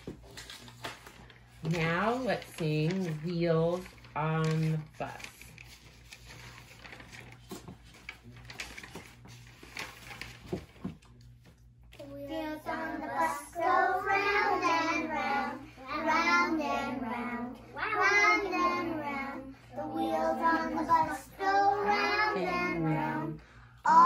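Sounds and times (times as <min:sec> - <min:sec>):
faint rustling and shuffling: 0:00.0 - 0:23.4
children singing: 0:12.1 - 0:24.0.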